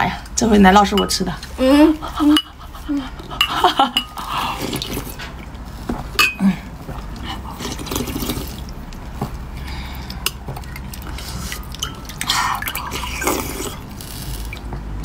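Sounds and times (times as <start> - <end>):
liquid dripping and splashing: 3.2 - 5.9, 6.8 - 15.0
spoon clinking on glass: 3.4 - 4.2, 6.2 - 6.4, 11.8 - 12.1.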